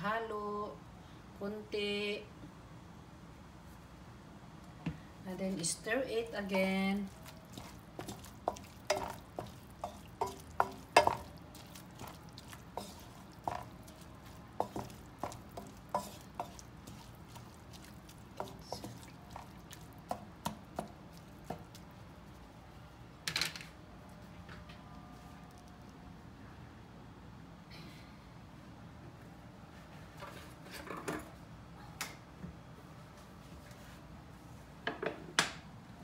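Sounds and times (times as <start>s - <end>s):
spatula scraping frying pan: 7.1s - 20.2s.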